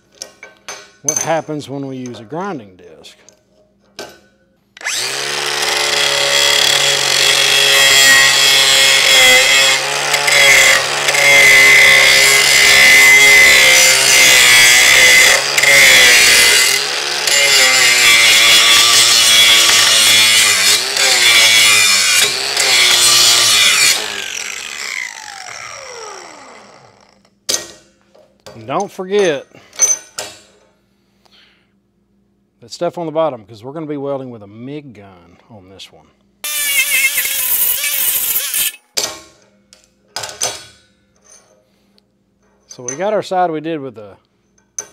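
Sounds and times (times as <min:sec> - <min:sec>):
angle grinder grinding metal: 0:04.8 - 0:27.2, 0:36.4 - 0:38.8
grinder spinning down: 0:04.8 - 0:27.2, 0:36.5 - 0:38.8.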